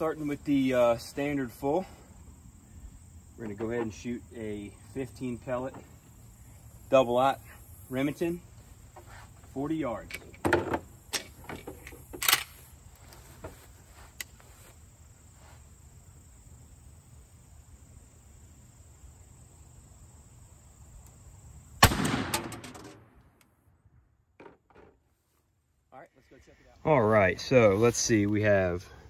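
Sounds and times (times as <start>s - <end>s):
shotgun handling clicks: 11.1s - 12.6s
shotgun blast: 21.8s - 23.2s.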